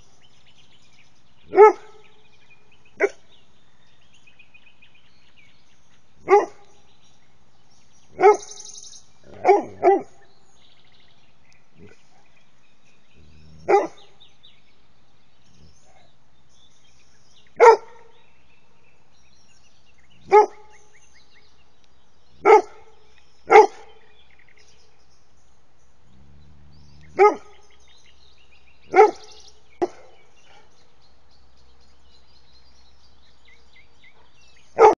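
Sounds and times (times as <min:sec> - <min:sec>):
dog barking: 0:01.5 - 0:02.0, 0:06.2 - 0:06.7, 0:08.2 - 0:08.6, 0:09.3 - 0:10.2, 0:13.6 - 0:14.0, 0:17.6 - 0:18.1, 0:20.3 - 0:20.7, 0:22.4 - 0:22.9, 0:23.5 - 0:24.0, 0:27.0 - 0:27.6, 0:28.9 - 0:30.7, 0:34.2 - 0:35.0.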